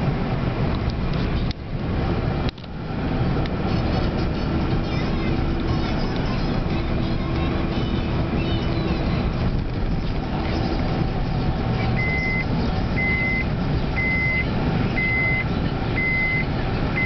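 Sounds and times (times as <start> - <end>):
car engine and road noise: 0.0 - 17.0
high repeating beep: 12.0 - 17.0.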